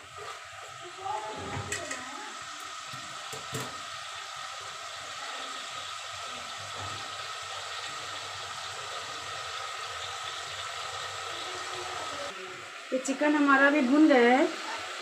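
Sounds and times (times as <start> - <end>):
chicken sizzling in a pot: 0.0 - 15.0.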